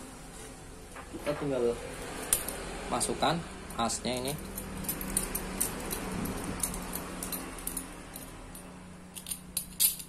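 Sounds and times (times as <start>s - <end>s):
metallic clicks and scrapes: 4.1s - 10.0s.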